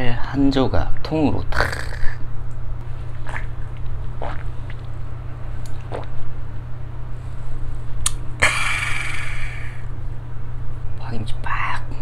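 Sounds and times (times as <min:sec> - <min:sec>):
low hum: 0:02.2 - 0:10.9
person chewing: 0:03.1 - 0:05.0.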